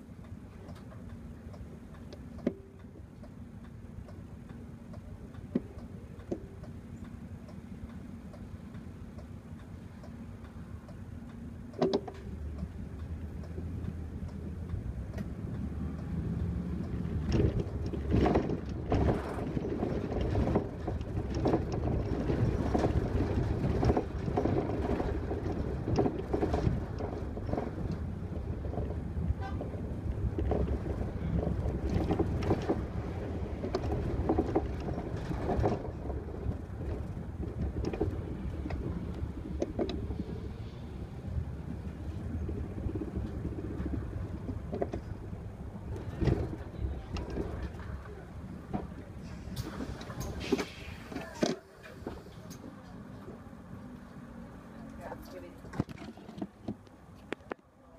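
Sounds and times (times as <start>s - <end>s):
bus engine: 0.0s - 57.9s
road noise: 0.0s - 57.9s
knocks and rattles: 16.4s - 40.2s.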